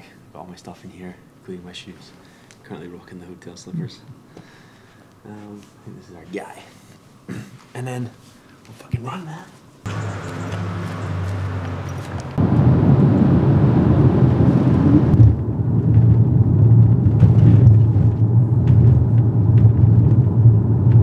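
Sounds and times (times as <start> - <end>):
car road and engine rumble: 9.9 - 21.0.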